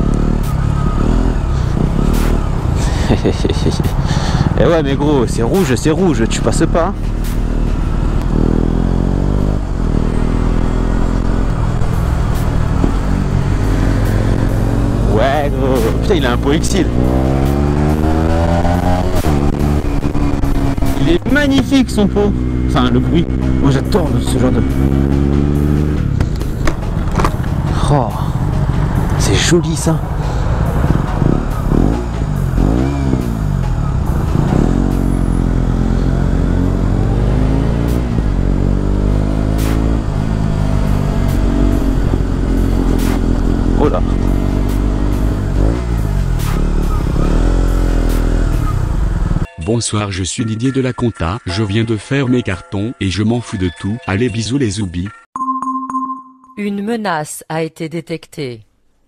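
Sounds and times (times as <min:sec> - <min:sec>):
cars passing: 0:00.0 - 0:49.5
motorcycle engine revving: 0:00.0 - 0:49.5.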